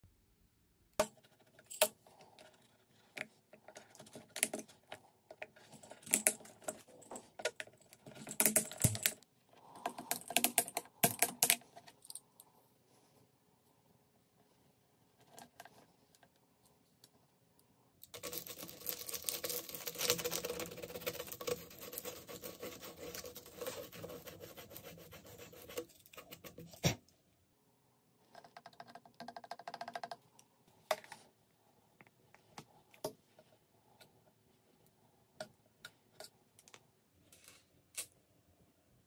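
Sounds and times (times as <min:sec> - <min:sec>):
plastic pipe scraping: 0:18.2 - 0:27.0.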